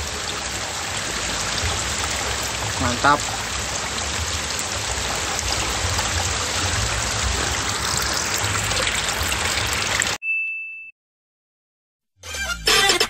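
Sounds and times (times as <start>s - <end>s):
stream running water: 0.0s - 10.2s.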